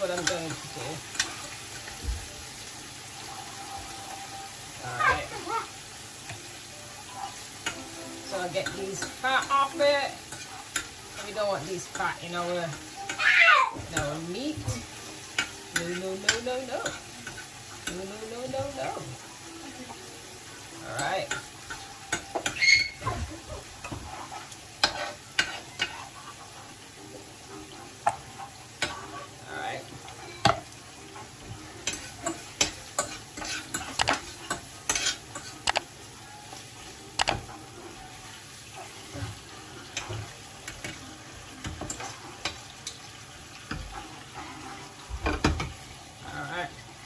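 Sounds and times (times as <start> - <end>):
steak sizzling in a frying pan: 0.0 - 47.0
metal utensil scraping a pan: 7.1 - 13.2, 20.9 - 23.1, 23.8 - 35.8, 36.8 - 45.4.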